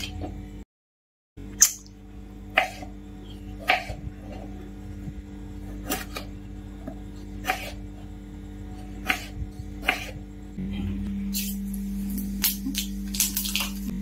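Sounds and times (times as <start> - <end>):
steady low hum: 1.4 - 14.0.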